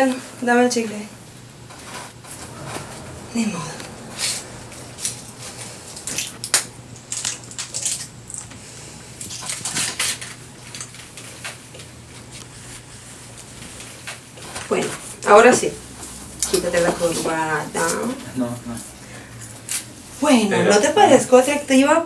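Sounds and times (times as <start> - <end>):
faint low hum: 1.2 - 9.8.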